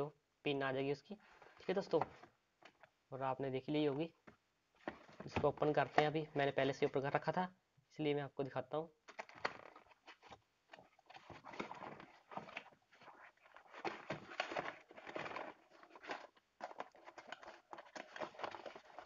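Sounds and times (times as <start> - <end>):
cardboard box being handled: 9.4 - 19.0.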